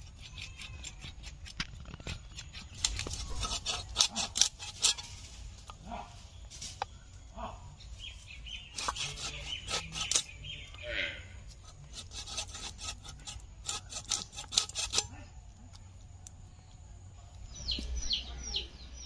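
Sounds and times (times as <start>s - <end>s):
blade chopping meat and bone: 0.0s - 5.0s, 8.7s - 10.4s, 11.6s - 15.1s
birds chirping: 1.8s - 19.0s.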